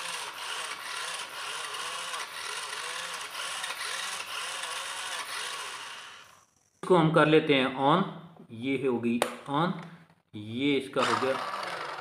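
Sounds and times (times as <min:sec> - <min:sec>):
toy car electric whirr: 0:00.0 - 0:06.8, 0:11.0 - 0:12.0.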